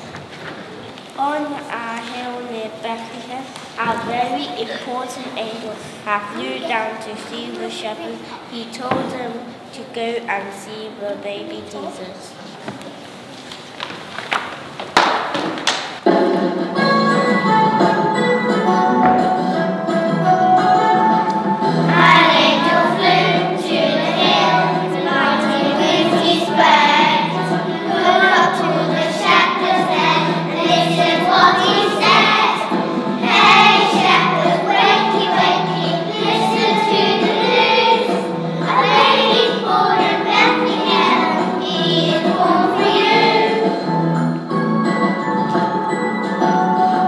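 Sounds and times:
music with steady beat: 16.0 - 47.0
children singing in unison: 21.6 - 43.9.

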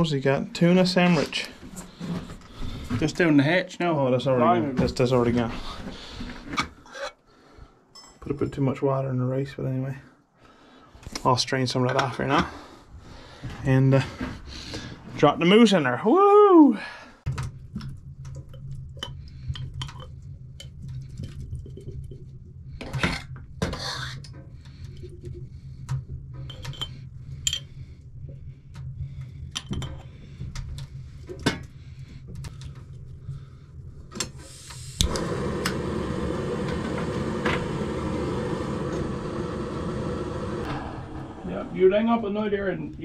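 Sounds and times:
gas burner hissing: 34.1 - 43.0
stove igniter click: 34.2 - 39.9.

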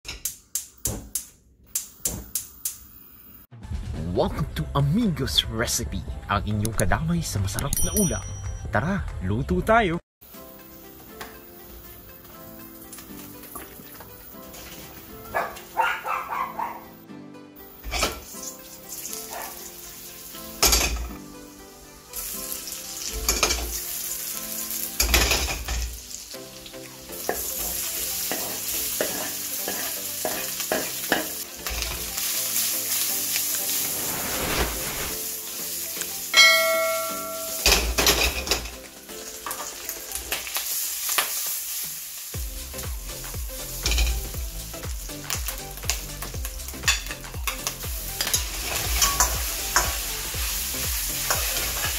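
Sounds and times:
food sizzling in hot oil: 10.3 - 15.7, 17.7 - 51.9
spatula scraping and tapping pan: 28.3 - 31.4
metal striking metal: 36.4 - 38.2.

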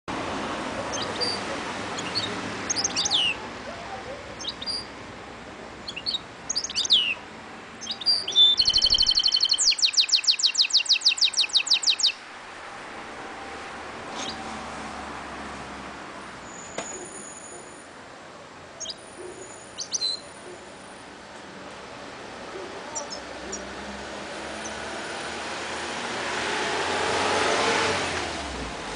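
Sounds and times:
finch chirps and sweeping notes: 2.0 - 3.4, 5.8 - 7.2, 7.8 - 12.2, 14.1 - 14.5, 18.8 - 20.4
fast bird trill: 7.8 - 12.2.

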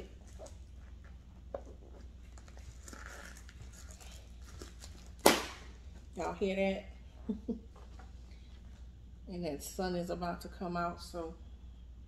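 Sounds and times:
purse rustling: 1.9 - 5.2.

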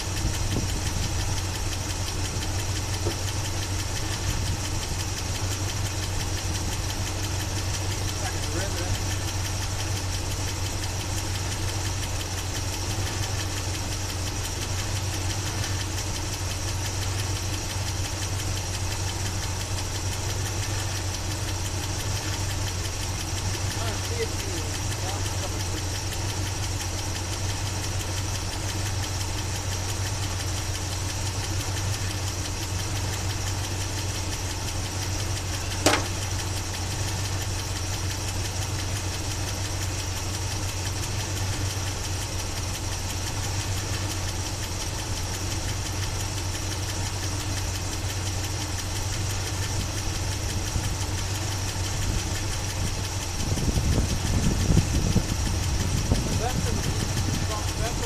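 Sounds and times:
engine idling: 0.0 - 58.0
sharp click: 35.8 - 36.2
low rumble: 49.9 - 58.0.

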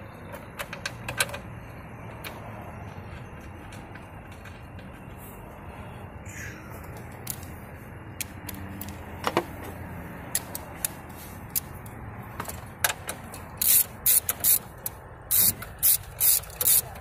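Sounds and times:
ratchet wrench strokes: 13.3 - 17.0.

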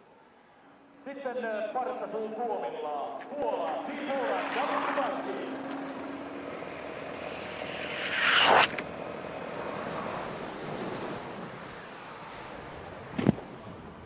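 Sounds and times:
steady rushing noise: 3.8 - 13.0
skis hissing on track: 7.5 - 8.8.

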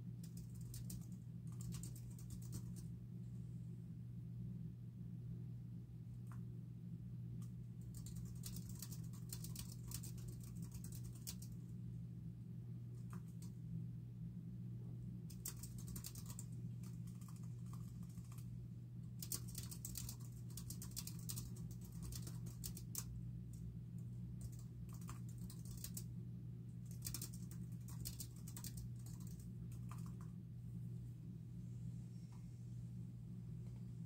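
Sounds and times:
steady low hum: 0.0 - 34.0
keyboard typing clicks: 15.3 - 18.4, 19.2 - 23.1, 26.9 - 30.3.

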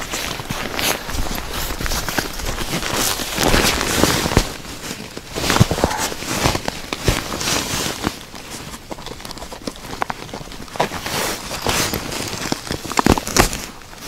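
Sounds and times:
bag rustling: 0.0 - 8.9, 10.2 - 14.0
crunching in snow and slush: 0.0 - 14.0.

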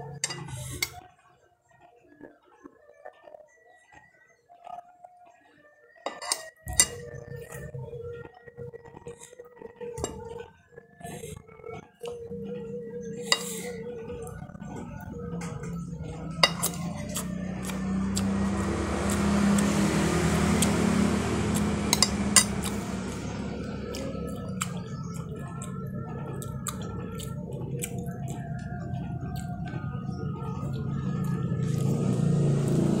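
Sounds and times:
dishes and cutlery clinking: 0.0 - 1.0, 6.1 - 7.1, 13.2 - 13.8, 15.4 - 17.3
steady low hum: 12.2 - 33.0.

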